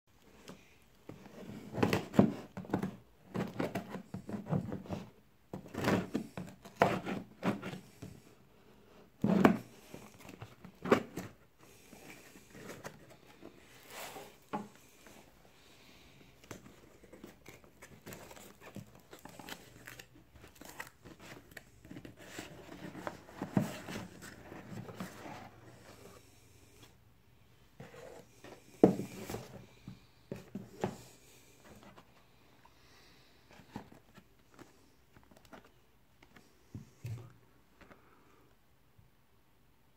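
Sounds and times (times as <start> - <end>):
cardboard box scraping and rustling: 9.2 - 14.8, 17.0 - 26.2, 27.8 - 29.7.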